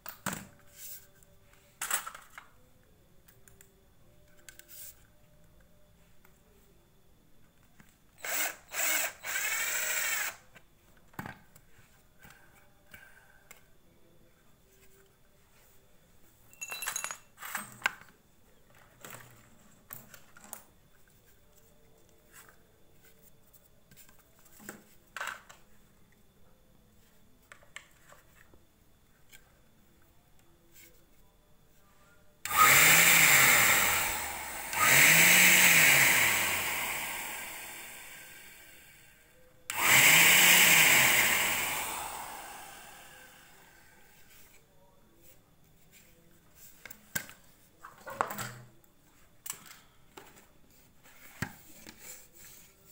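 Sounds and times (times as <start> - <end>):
cordless drill driving screws: 8.2 - 10.4, 32.5 - 38.7, 39.7 - 43.6
vacuum fan motor whirring: 8.2 - 10.4, 32.5 - 39.1, 39.7 - 44.0.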